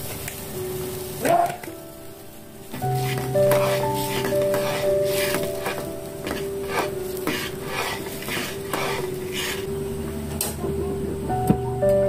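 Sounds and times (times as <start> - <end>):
metal spatula scraping a wok: 2.8 - 9.7.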